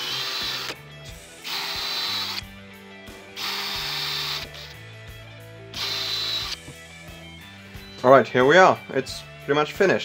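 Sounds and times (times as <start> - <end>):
drill boring into plywood: 0.0 - 0.8, 1.4 - 2.5, 3.4 - 4.7, 5.8 - 6.7.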